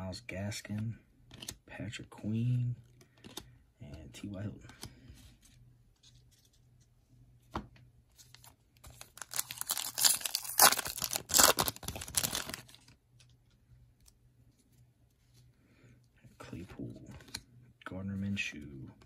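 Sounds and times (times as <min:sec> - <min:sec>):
foil wrapper tearing and crinkling: 0:08.9 - 0:12.9.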